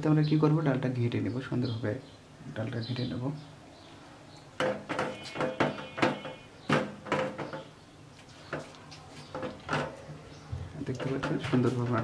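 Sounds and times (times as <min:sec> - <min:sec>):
wooden masher knocking a pot: 0:04.6 - 0:07.8, 0:10.9 - 0:12.0.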